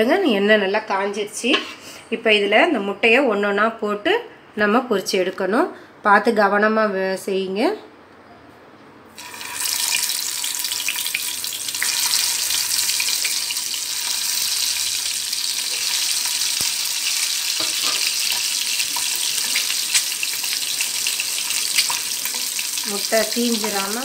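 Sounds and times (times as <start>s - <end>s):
oil sizzling in a frying pan: 9.2s - 24.0s
small crackles: 21.6s - 22.5s.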